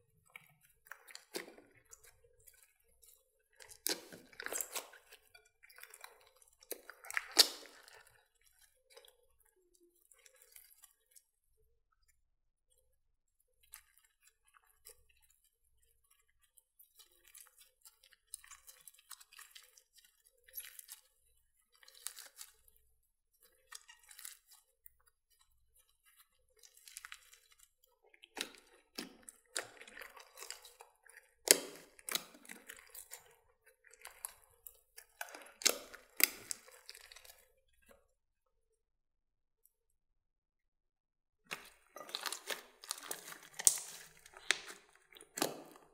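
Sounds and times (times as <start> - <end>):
slime squelching and crackling: 0.0 - 11.6, 13.5 - 38.1, 41.5 - 45.9
slime popping: 6.8 - 8.0, 31.4 - 33.2, 41.5 - 45.9.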